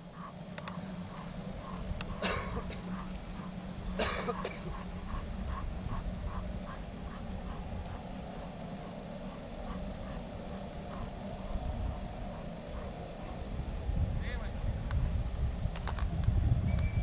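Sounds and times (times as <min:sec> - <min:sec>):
steady low hum: 0:00.0 - 0:17.0
soft ticks: 0:00.5 - 0:02.2
person coughing: 0:02.2 - 0:02.9, 0:04.0 - 0:04.8.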